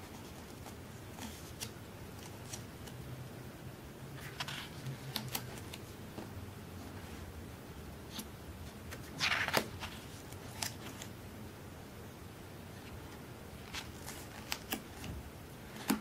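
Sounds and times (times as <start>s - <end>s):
page turning: 4.2s - 5.8s, 8.9s - 11.1s, 13.6s - 15.2s
paper rustling: 8.9s - 11.1s, 13.6s - 16.0s.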